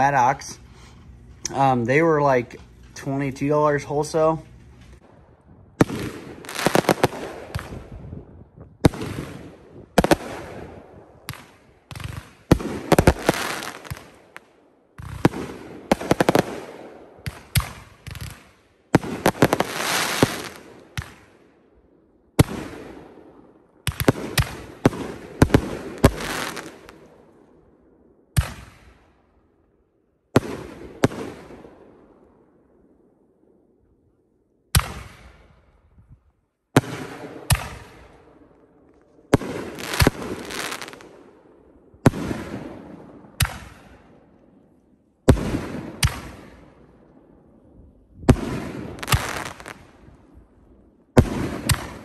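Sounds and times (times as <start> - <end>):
firework shells bursting: 5.8 - 7.8, 11.2 - 14.4, 39.4 - 41.1.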